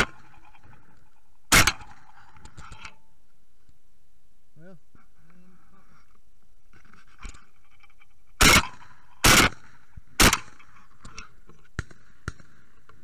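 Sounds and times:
shotgun shots: 1.5s - 2.1s, 8.4s - 10.7s, 11.7s - 12.9s.

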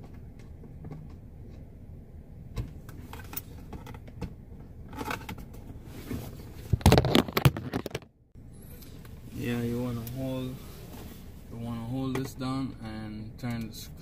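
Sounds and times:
clattering and rustling: 4.9s - 8.1s.

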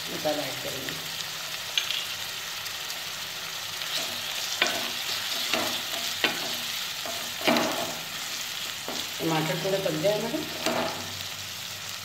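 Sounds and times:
food sizzling in oil: 0.0s - 12.0s
wooden spatula scraping wok: 3.9s - 11.2s.

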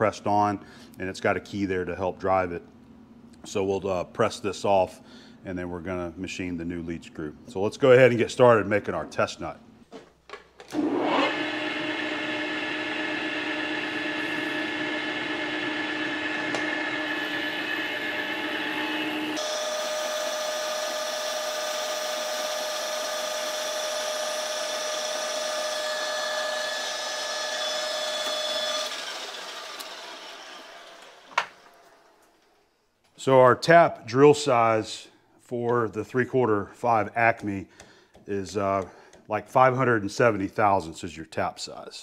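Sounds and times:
lathe gear whine: 10.8s - 32.2s.

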